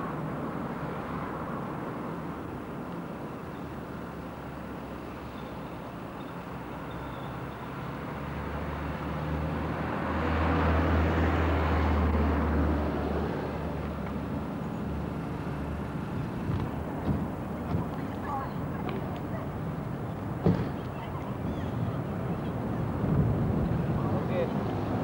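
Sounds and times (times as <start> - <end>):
vehicle passing by: 7.8 - 16.5.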